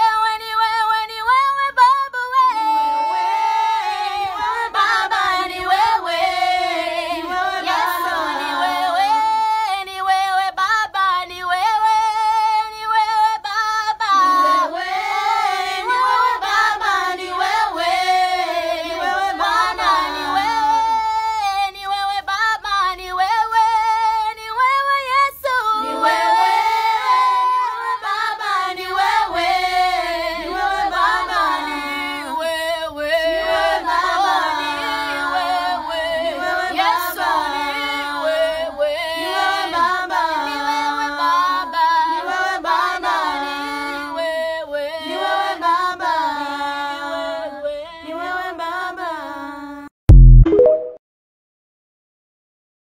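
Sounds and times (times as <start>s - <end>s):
girl singing unaccompanied: 0.0s - 29.6s.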